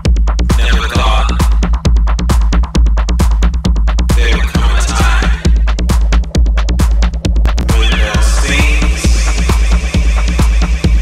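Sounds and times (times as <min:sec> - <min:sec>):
electronic dance music: 0:00.0 - 0:11.0
high synth sweep: 0:07.4 - 0:11.0.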